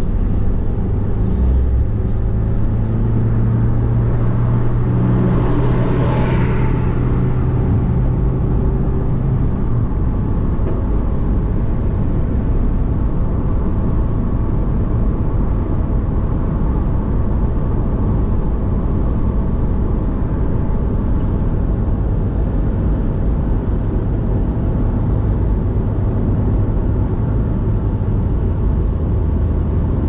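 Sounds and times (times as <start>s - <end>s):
car cabin road and engine rumble: 0.0s - 30.0s.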